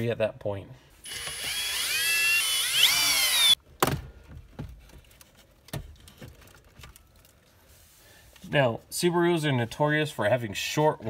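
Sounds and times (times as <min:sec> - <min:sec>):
cordless drill motor whine: 0:01.0 - 0:03.6.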